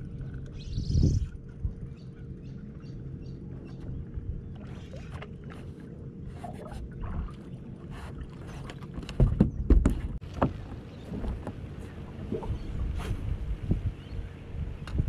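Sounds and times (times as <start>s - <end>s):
low rumble of wind and water: 0.0s - 15.0s
thumps on boat deck: 9.1s - 11.6s.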